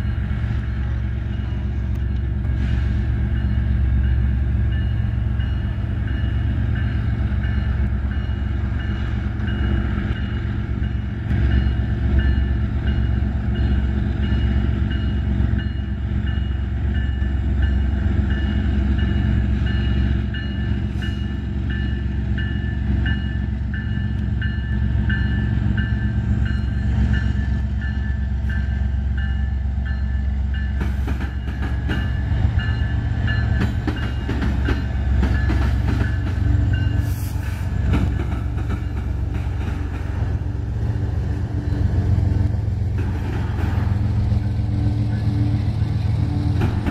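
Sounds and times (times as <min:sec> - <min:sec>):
diesel locomotive rumbling: 0:00.0 - 0:46.9
crossing bell ringing: 0:03.2 - 0:37.3.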